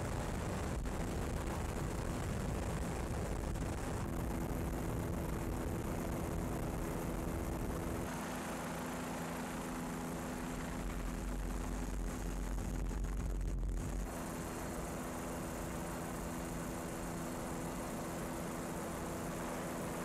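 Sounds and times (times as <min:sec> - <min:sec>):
aircraft engine drone: 0:00.0 - 0:20.0
deep low rumble: 0:11.0 - 0:14.1.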